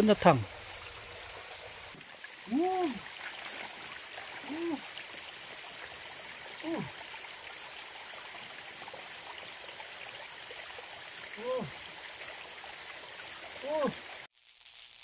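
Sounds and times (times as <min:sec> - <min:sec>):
stream running over rocks: 0:00.0 - 0:14.3
man exclaiming: 0:02.5 - 0:03.0, 0:04.4 - 0:04.9, 0:06.6 - 0:06.9, 0:11.4 - 0:11.7, 0:13.6 - 0:14.0.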